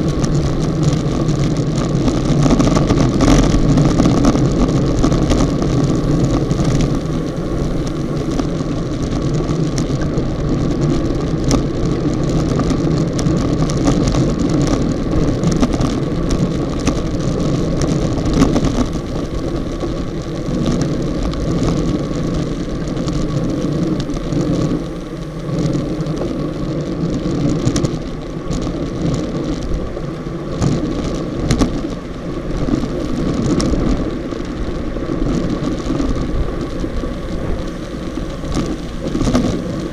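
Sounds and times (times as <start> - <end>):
road noise: 0.0 - 39.9
wind rush: 0.0 - 39.9.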